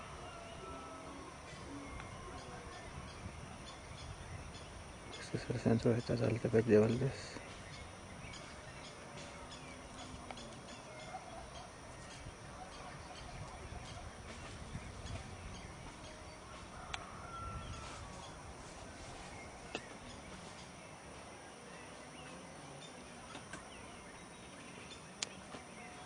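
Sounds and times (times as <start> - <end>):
faint bird calls: 0.0 - 26.0
wind rumble on microphone: 1.4 - 5.3, 11.9 - 19.8.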